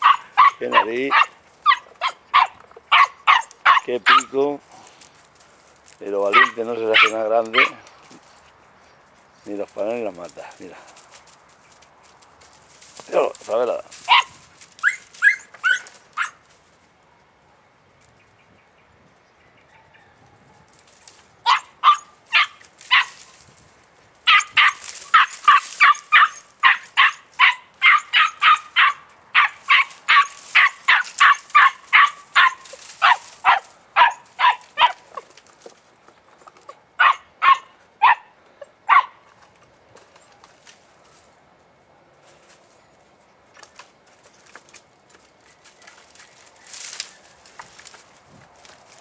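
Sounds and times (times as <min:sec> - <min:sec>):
puppy barking in high yelps: 0:00.0 - 0:04.3, 0:06.3 - 0:07.8, 0:14.1 - 0:16.4, 0:21.4 - 0:23.3, 0:24.3 - 0:35.2, 0:37.0 - 0:39.2.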